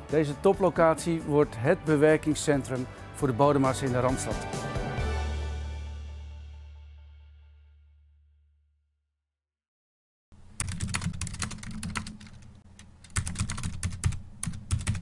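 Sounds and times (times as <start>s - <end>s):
background music: 0.0s - 8.0s.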